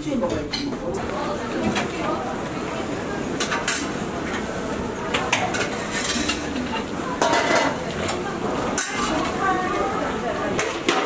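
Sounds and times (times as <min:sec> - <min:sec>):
metal bowls and utensils clinking: 0:03.4 - 0:11.0.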